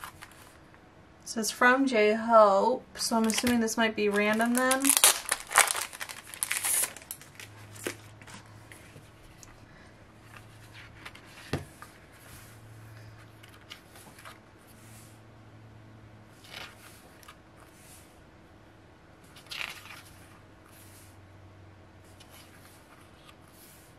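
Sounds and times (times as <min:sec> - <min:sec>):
plastic packaging crinkling: 0:03.2 - 0:08.4.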